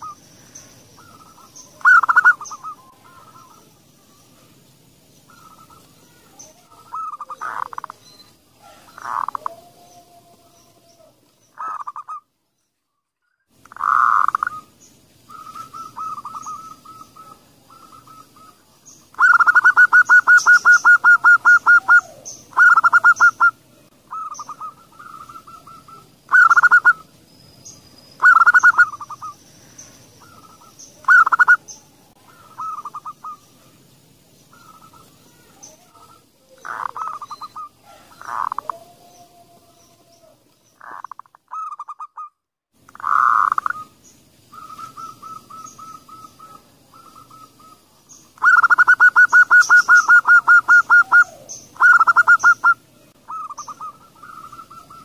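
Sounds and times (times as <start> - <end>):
doves cooing: 0.0 - 4.1, 5.3 - 12.2, 13.7 - 27.2, 28.2 - 42.2, 42.9 - 55.0.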